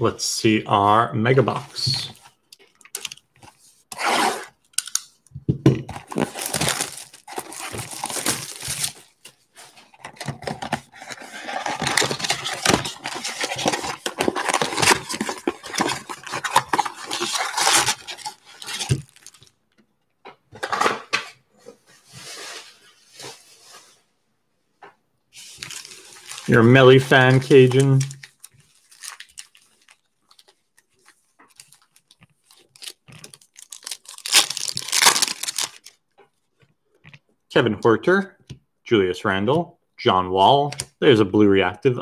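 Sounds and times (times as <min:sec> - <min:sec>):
cardboard and foil wrappers rustling: 0:05.9 - 0:19.5, 0:25.4 - 0:36.0.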